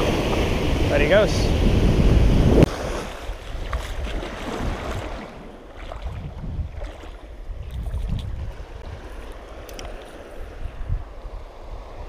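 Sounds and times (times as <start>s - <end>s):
sea waves breaking on rocks: 0.0s - 12.0s
wind on microphone: 0.0s - 12.0s
gentle lapping water: 2.6s - 12.0s.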